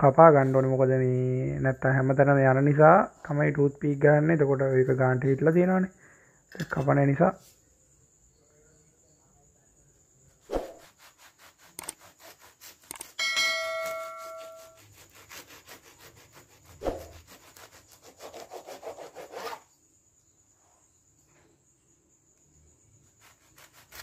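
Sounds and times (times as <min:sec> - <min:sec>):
knife sawing through sandwich: 0:10.8 - 0:13.2, 0:14.2 - 0:19.7, 0:23.1 - 0:24.0
metallic ring: 0:13.2 - 0:14.8.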